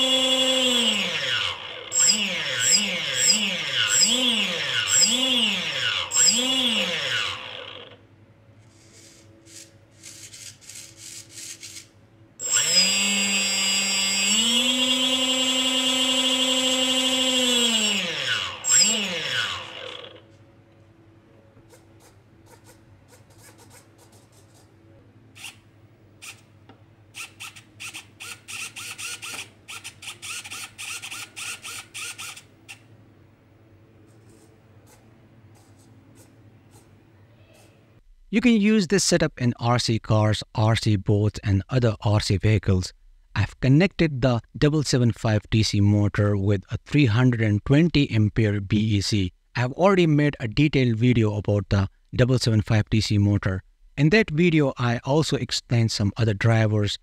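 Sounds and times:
servos whirring: 0.0 - 8.0, 11.6 - 20.2, 27.1 - 32.9
small motor whine: 0.0 - 8.0, 12.4 - 20.3.

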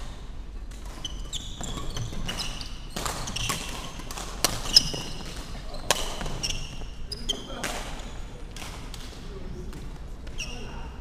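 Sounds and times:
shoes squeaking on wooden court: 0.0 - 8.4, 9.7 - 11.0
rackets smacking shuttlecock: 0.7 - 6.4.

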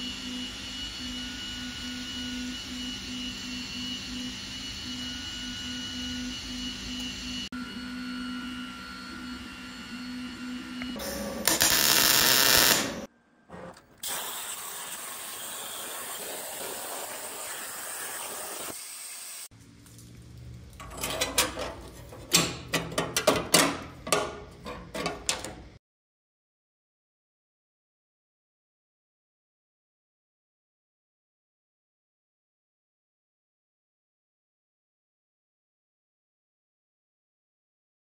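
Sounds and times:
plasma cutter hissing: 11.0 - 13.1, 14.0 - 19.5
sharp crackles and pops: 11.4 - 13.0.

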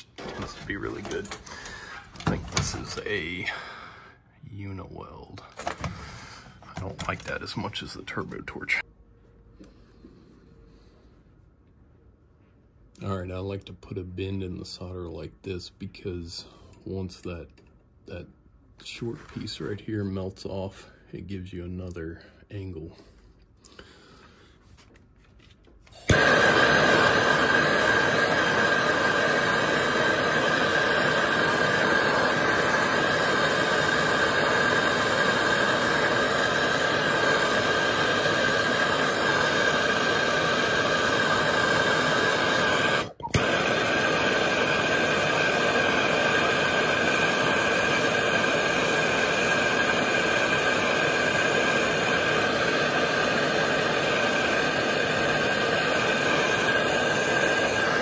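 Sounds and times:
gas torch rushing: 0.0 - 3.8, 25.9 - 58.0.

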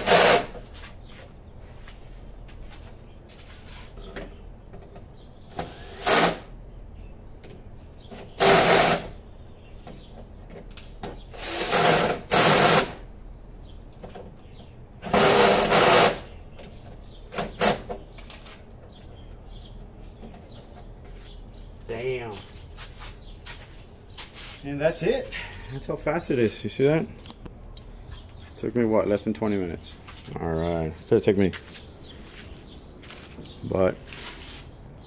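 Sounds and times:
cordless drill driving screws: 0.0 - 0.6, 5.5 - 6.5, 8.4 - 9.1, 11.3 - 13.0, 15.0 - 16.3.

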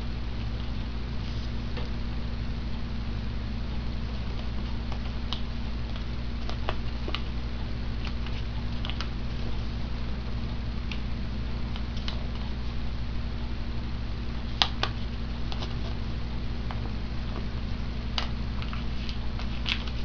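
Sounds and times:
steady low hum: 0.0 - 20.0
paper being folded: 18.5 - 20.0.

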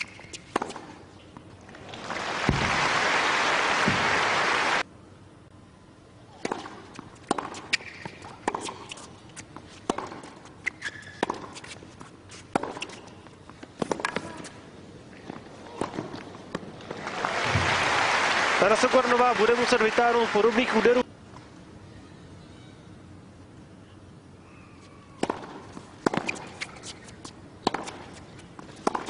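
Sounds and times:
racquet hitting tennis ball: 0.0 - 1.0, 6.4 - 11.8, 12.4 - 13.1, 25.2 - 29.0
tennis ball bouncing: 0.0 - 1.5, 6.3 - 14.5, 25.1 - 29.0
crowd applause: 1.7 - 4.8, 16.9 - 21.0
shoe squeaks on court: 9.7 - 13.2, 26.1 - 28.4.

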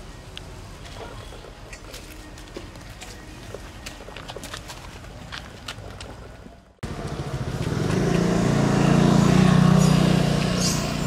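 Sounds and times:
vehicle engine passing: 6.8 - 11.0.

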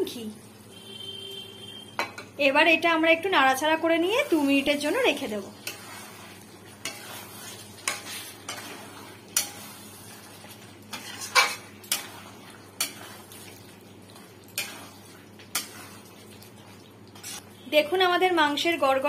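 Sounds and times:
metal spatula scraping a pan: 4.2 - 16.1, 17.2 - 17.5.

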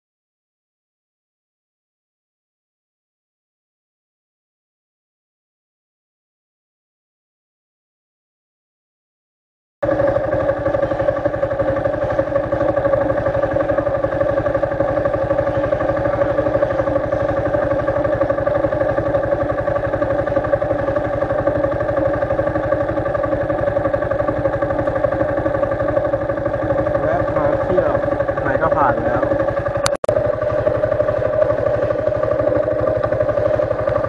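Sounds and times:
motorcycle engine idling: 9.8 - 34.0.

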